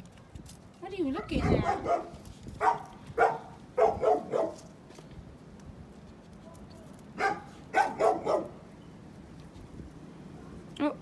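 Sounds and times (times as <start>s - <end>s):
dog barking: 1.2s - 4.6s, 7.2s - 8.6s.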